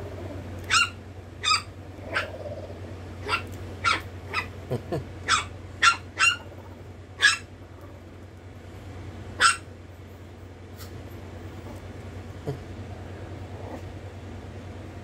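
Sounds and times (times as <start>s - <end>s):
puppy yapping: 0.6s - 2.5s, 3.2s - 4.6s, 5.2s - 7.5s, 9.4s - 9.7s.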